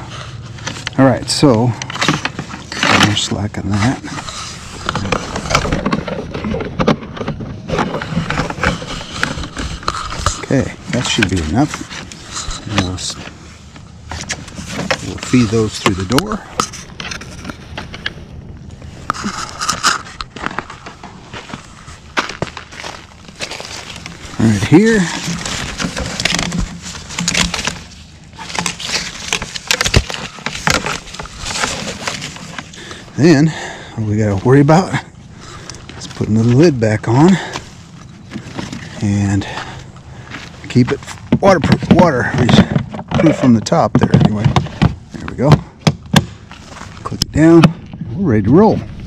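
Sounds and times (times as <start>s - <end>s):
electrical cords being handled: 0.0s - 48.7s
tent fabric rustling: 18.8s - 33.4s.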